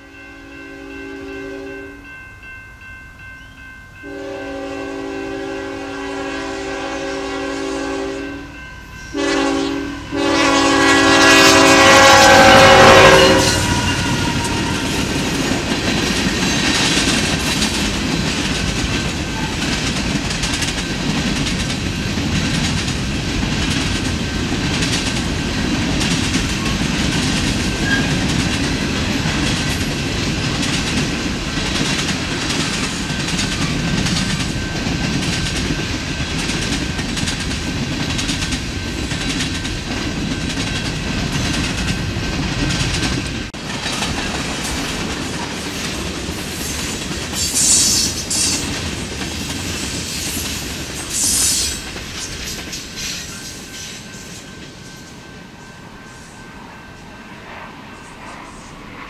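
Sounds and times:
train horn blasts: 0:00.0 - 0:02.1, 0:04.0 - 0:15.2, 0:27.8 - 0:28.3
train rumbling by: 0:00.0 - 0:59.0
wheels clattering on rails: 0:13.6 - 0:55.3.

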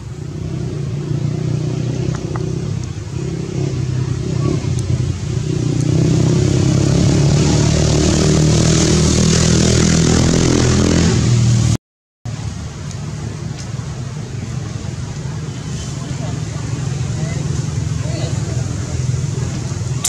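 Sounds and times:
vehicle engine running loudly: 0:00.0 - 0:11.8
lower engine hum: 0:00.0 - 0:20.0.

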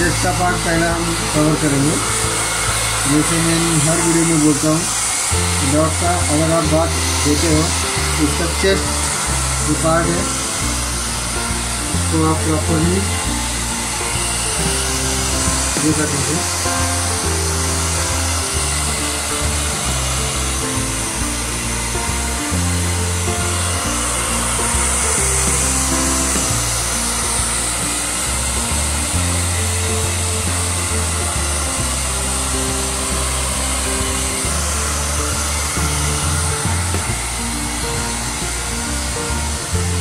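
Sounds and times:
background music with bass line: 0:00.0 - 0:40.0
hair dryer running: 0:00.0 - 0:40.0.

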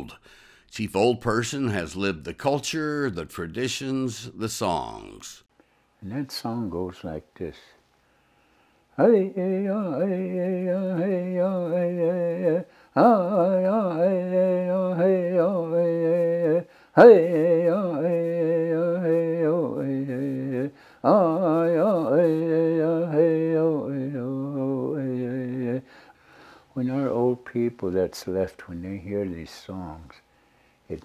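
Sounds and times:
elderly man singing unaccompanied: 0:09.0 - 0:25.9, 0:26.7 - 0:30.2.

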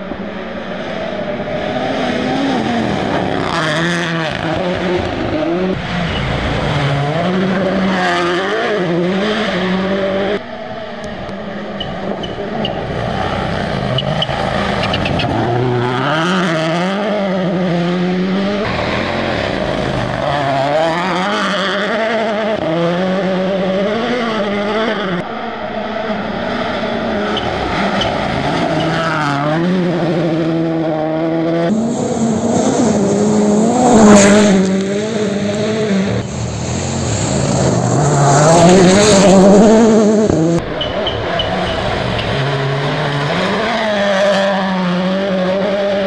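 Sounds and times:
rally car engine revving: 0:00.0 - 0:46.0.

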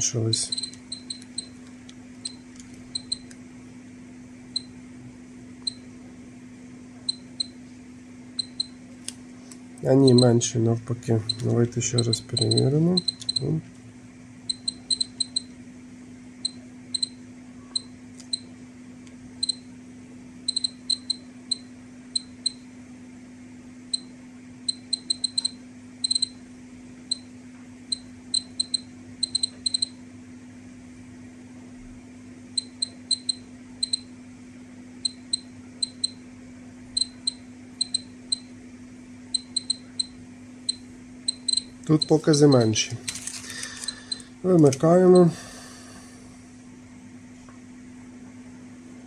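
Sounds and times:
steady low hum: 0:00.0 - 0:49.0
dosimeter short high beeps: 0:00.3 - 0:01.6, 0:02.2 - 0:03.3, 0:05.6 - 0:05.8, 0:07.1 - 0:07.6, 0:08.4 - 0:08.8, 0:09.9 - 0:10.4, 0:11.2 - 0:13.5, 0:14.5 - 0:15.5, 0:16.4 - 0:18.5, 0:19.4 - 0:19.7, 0:20.5 - 0:22.6, 0:23.9 - 0:24.1, 0:24.7 - 0:26.4, 0:27.9 - 0:30.0, 0:32.6 - 0:34.1, 0:35.0 - 0:36.2, 0:37.0 - 0:38.5, 0:39.3 - 0:42.7, 0:43.8 - 0:44.3.

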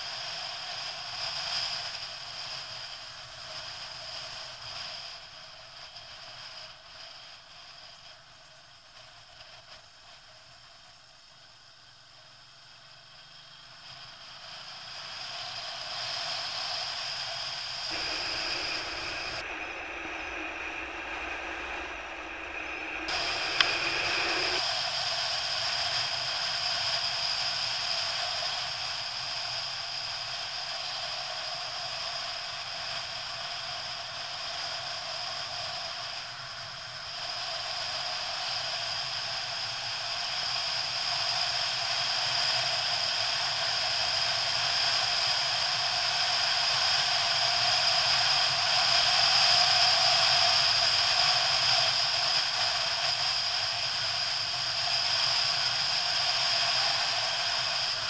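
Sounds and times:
motorcycle engine: 0:17.9 - 0:24.6
wind rushing: 0:17.9 - 0:24.6.

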